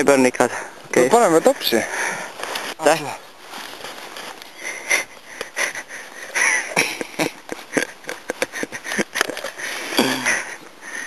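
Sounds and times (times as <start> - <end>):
crackling and rustling: 2.2 - 10.6.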